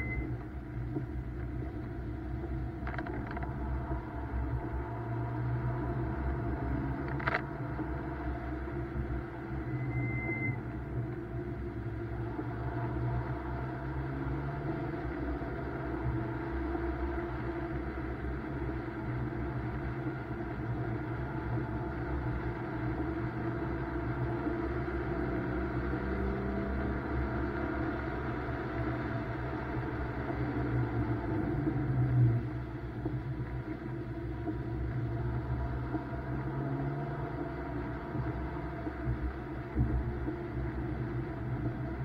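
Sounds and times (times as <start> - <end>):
tyre and road rumble: 0.0 - 9.7
car engine running: 0.0 - 42.0.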